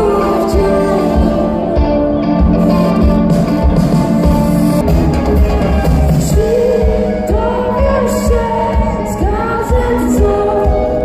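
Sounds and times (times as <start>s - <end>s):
guitar: 0.0s - 11.0s
live band playing: 0.0s - 11.0s.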